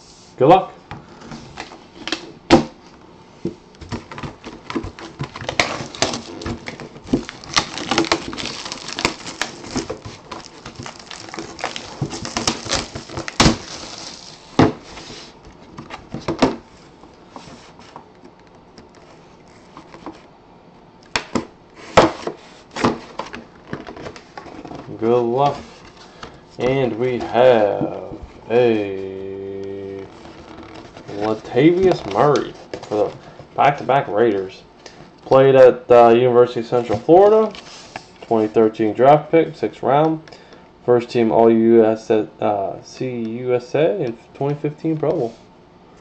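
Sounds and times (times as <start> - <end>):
plastic wrap crinkling and tearing: 4.4 - 14.6, 23.7 - 33.4.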